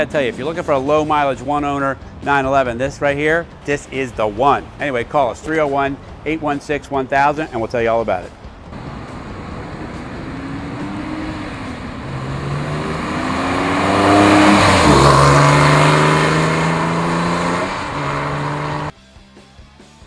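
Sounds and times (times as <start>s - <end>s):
car engine driving past: 8.8s - 18.9s.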